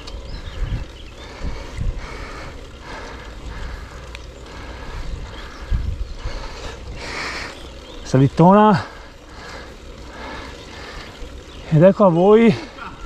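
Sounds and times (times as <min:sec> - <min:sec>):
wind rumbling on microphone: 0:00.0 - 0:08.1
bicycle tyre and drivetrain noise: 0:00.0 - 0:13.0.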